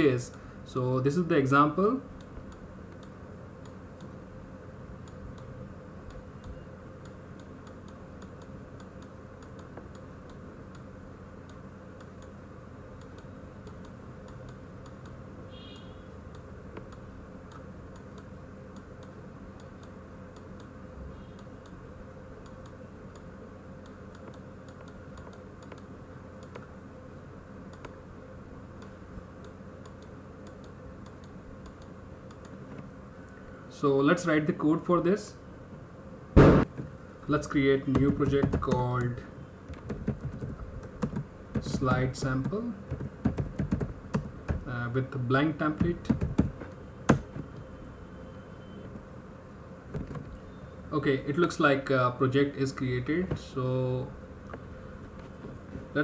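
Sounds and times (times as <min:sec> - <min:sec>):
low electrical hum: 0:00.0 - 0:56.0
computer input devices clicking: 0:37.9 - 0:39.1.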